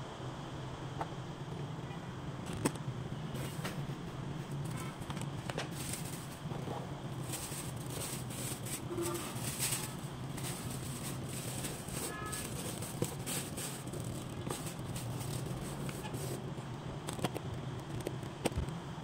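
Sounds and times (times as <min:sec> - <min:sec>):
steady low hum: 0:00.0 - 0:19.0
plastic bag rustling: 0:04.5 - 0:16.5.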